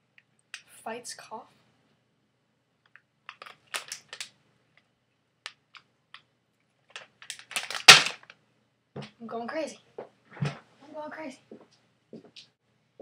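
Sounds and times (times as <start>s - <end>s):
plastic bag crinkling: 3.3s - 4.3s, 6.9s - 8.4s.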